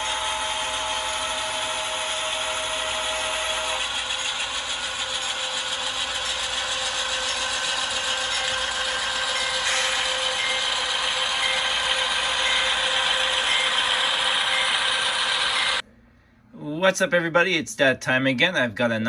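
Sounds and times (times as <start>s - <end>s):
model locomotives whirring and clattering: 0.0s - 15.8s.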